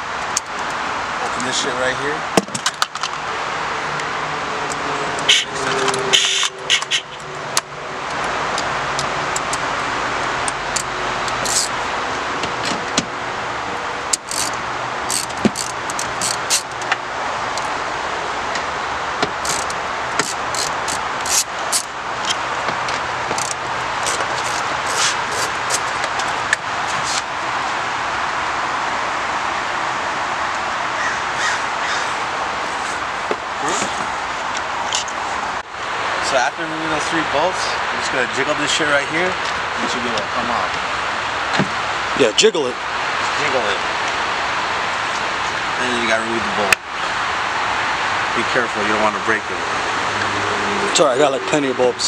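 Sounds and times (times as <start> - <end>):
socket wrench metallic clicks: 10.4 - 11.7, 14.1 - 16.9, 19.4 - 21.9, 23.3 - 25.9.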